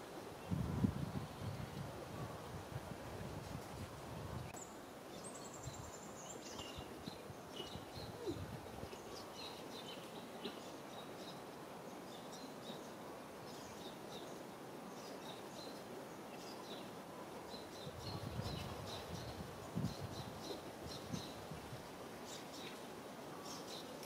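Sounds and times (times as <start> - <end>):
steady hiss: 0.0 - 24.0
small birds chirping: 4.5 - 21.5.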